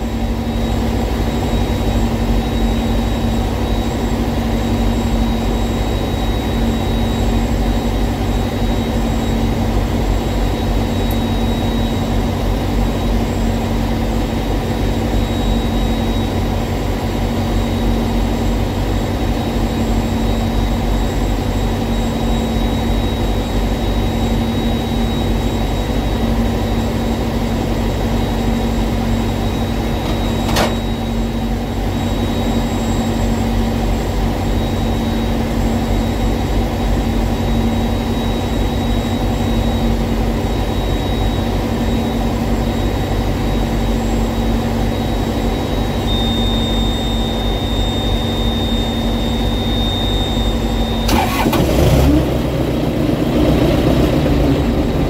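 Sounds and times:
diesel engine idling: 51.1s - 55.0s.

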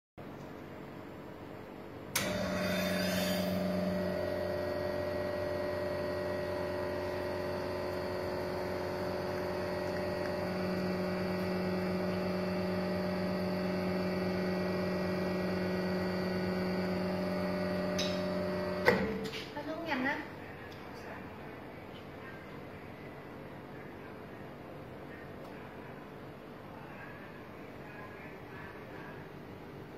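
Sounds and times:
espresso machine pump humming: 2.2s - 19.2s.

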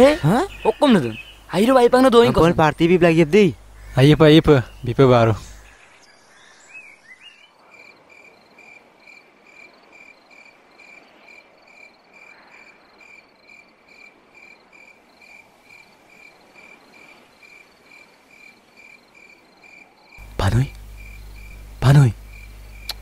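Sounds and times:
cricket chirping: 0.0s - 23.0s
soft background hiss: 20.2s - 23.0s.

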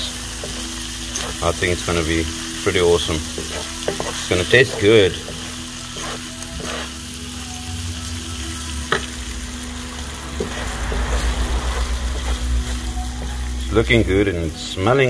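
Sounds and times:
wooden spatula scraping a pan: 0.0s - 7.3s
food sizzling in a frying pan: 0.0s - 15.0s.

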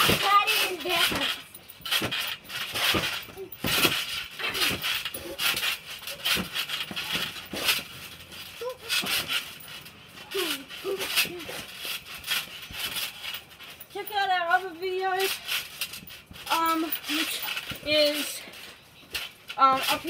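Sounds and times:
springs clinking and jangling: 0.0s - 20.0s
trampoline mat thumping: 0.0s - 20.0s.

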